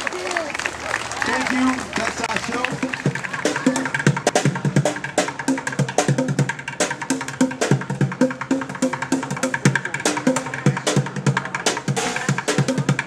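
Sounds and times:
drumming on plastic buckets: 2.2s - 5.4s.

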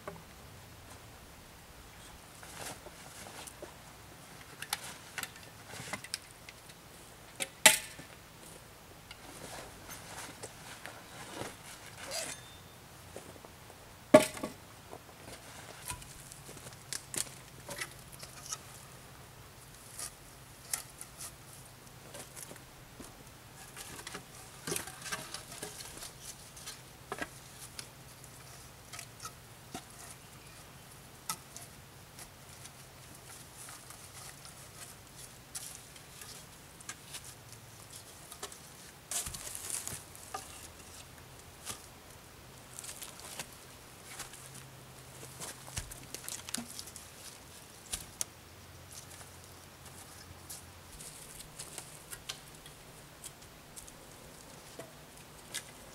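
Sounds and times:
rustling and scuffing on forest floor: 9.2s - 13.8s, 14.9s - 18.9s, 32.2s - 55.9s.

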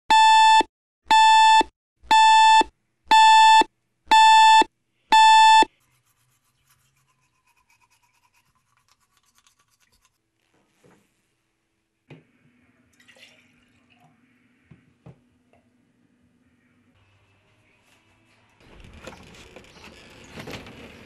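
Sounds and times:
alarm clock beeping: 0.1s - 5.7s
toothbrush scratching on teeth: 5.7s - 10.2s.

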